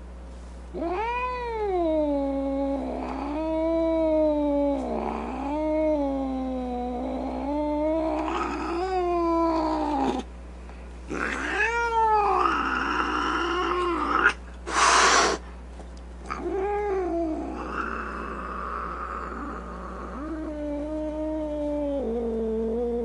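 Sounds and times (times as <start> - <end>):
cat yowling: 0.8 - 10.3, 11.1 - 15.4, 16.3 - 23.0
cat hissing: 11.1 - 15.5, 16.3 - 20.9.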